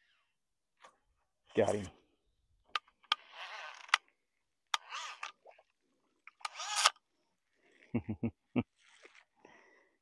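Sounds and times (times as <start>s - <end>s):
fishing reel whirring: 3.2s - 4.0s, 4.8s - 5.5s, 6.3s - 7.0s.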